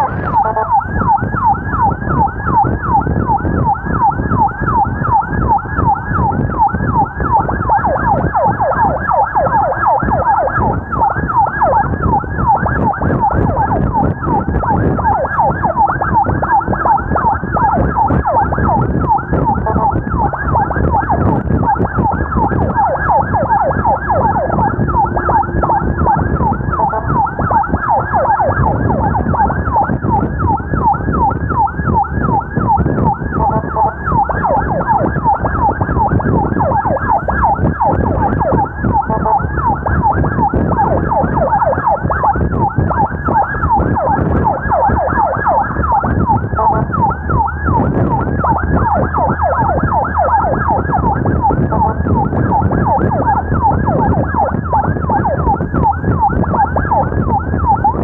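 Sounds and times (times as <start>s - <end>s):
heavy low rumble: 0.0s - 58.0s
siren in fast yelp mode: 0.0s - 58.0s.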